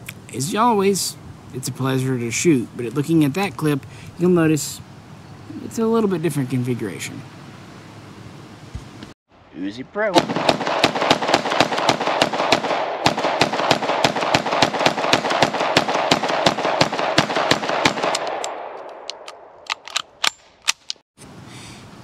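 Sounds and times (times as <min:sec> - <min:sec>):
pistol shots echoing: 0:10.2 - 0:19.5.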